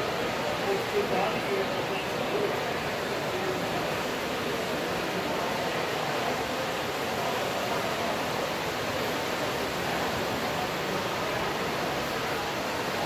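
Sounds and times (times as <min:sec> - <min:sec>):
exhibition hall background noise: 0:00.0 - 0:13.0.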